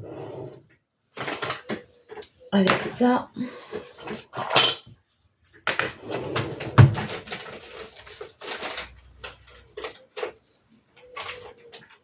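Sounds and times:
rustling: 0:05.6 - 0:12.0.

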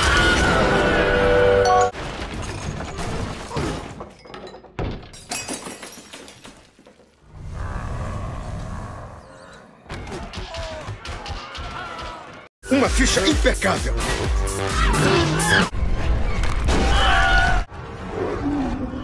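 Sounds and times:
glass breaking: 0:02.0 - 0:06.8.

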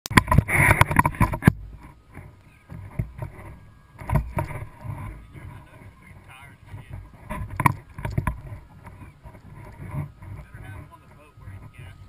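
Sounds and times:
thumps: 0:00.1 - 0:05.8, 0:06.7 - 0:10.9
water sounds: 0:00.1 - 0:12.0.

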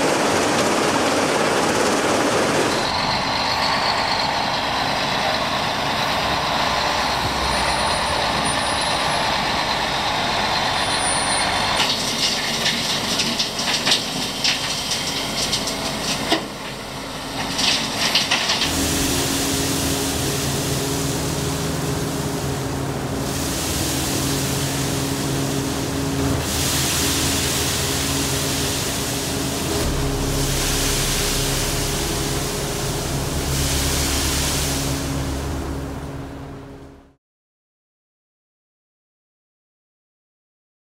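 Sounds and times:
bulldozer diesel engine hum: 0:00.0 - 0:37.2
heavy dump truck running: 0:00.0 - 0:37.2
concrete fill pouring through grates: 0:10.8 - 0:21.8
rattle of crushed concrete: 0:11.8 - 0:18.8.

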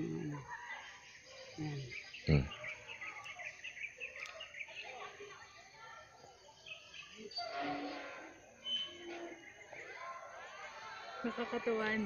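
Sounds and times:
person murmuring and humming: 0:00.0 - 0:00.4
bird chirping: 0:00.0 - 0:05.6, 0:06.2 - 0:10.4.

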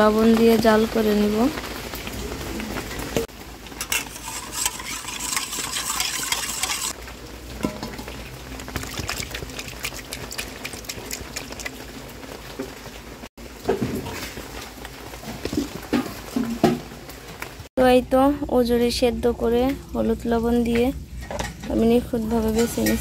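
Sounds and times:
water boiling in a pot: 0:00.0 - 0:23.0
hands squelching wet tripe: 0:08.1 - 0:12.0.

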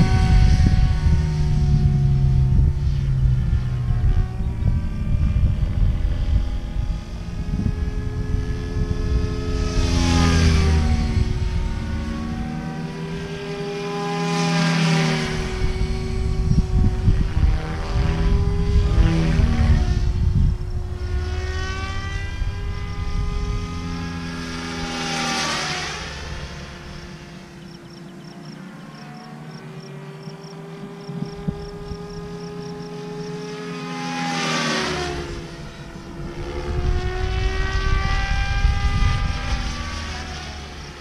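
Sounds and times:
rc helicopter whine passing by: 0:00.0 - 0:41.0.

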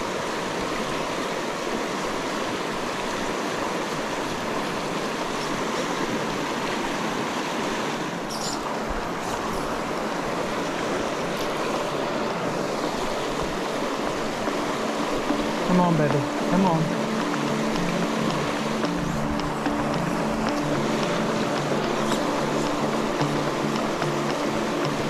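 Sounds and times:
flowing river water: 0:00.0 - 0:25.0.

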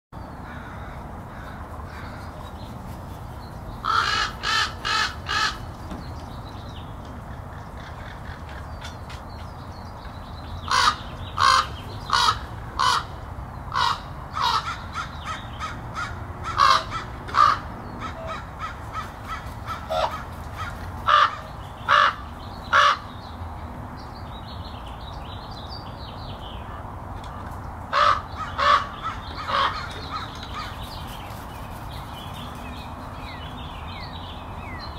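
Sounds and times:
crows cawing: 0:00.4 - 0:02.4, 0:03.8 - 0:05.7, 0:10.7 - 0:23.1, 0:27.9 - 0:30.8.

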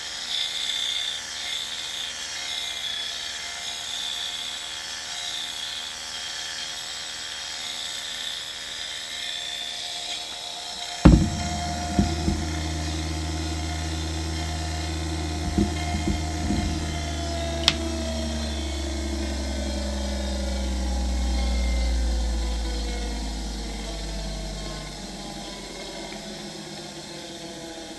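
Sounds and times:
low electrical hum: 0:11.0 - 0:27.9
small knocks: 0:11.1 - 0:22.3
gyro spinning with high whine: 0:11.1 - 0:27.9.

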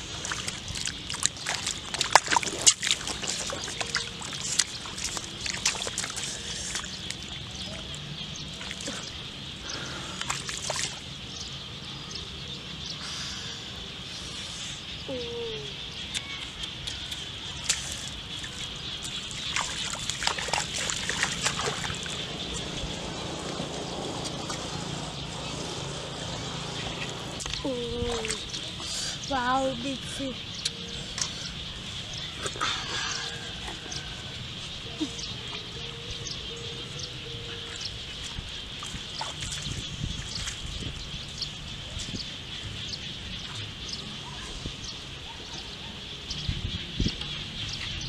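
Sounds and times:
splashing in muddy water: 0:00.0 - 0:11.2, 0:16.2 - 0:35.9, 0:37.5 - 0:42.5.

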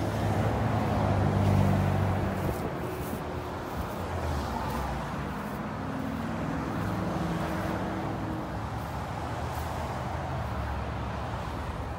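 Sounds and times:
road traffic noise: 0:00.0 - 0:11.9
vehicle engine hum: 0:00.0 - 0:11.9.

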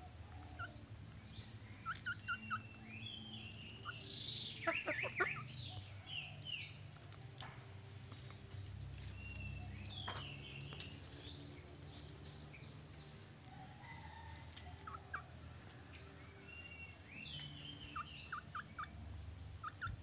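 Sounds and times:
hens calling: 0:01.8 - 0:06.4.

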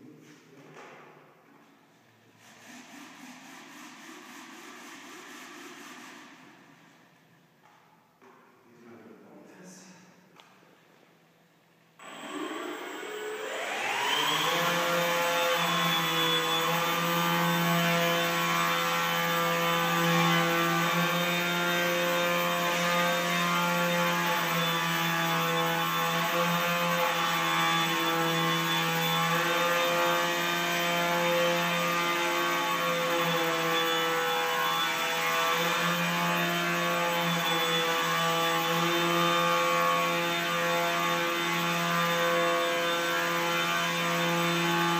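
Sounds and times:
drone propellers buzzing whine: 0:12.0 - 0:44.6.

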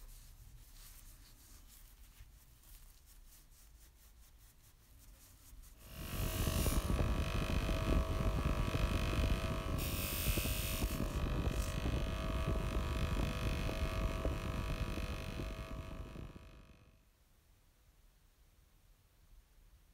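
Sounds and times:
motor-driven wheel rumbling: 0:05.8 - 0:16.9
steel part hissing on wheel: 0:09.8 - 0:11.7.

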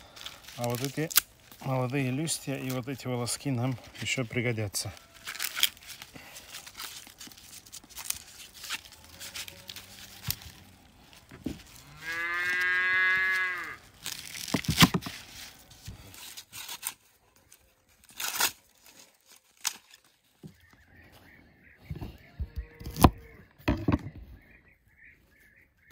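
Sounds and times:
corn husks tearing: 0:00.0 - 0:20.5, 0:22.6 - 0:23.4
cow mooing: 0:11.8 - 0:13.8.

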